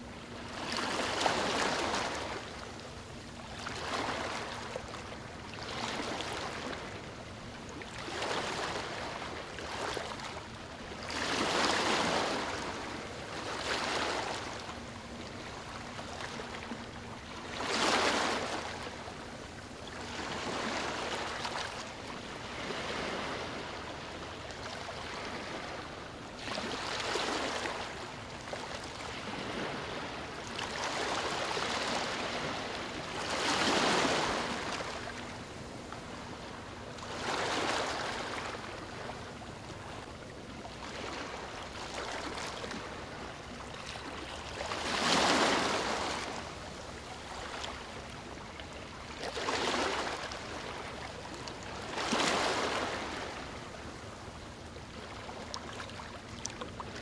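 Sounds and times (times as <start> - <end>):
waves breaking on beach: 0.0 - 2.5, 11.0 - 14.6, 17.4 - 19.0, 20.0 - 39.2, 43.8 - 47.9, 49.1 - 54.2.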